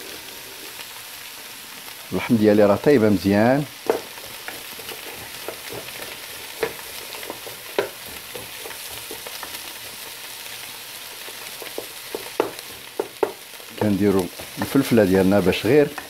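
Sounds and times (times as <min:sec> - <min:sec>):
beef and peppers sizzling in a pan: 0:00.0 - 0:16.0
wooden spatula scraping a pan: 0:03.8 - 0:10.3, 0:11.1 - 0:16.0.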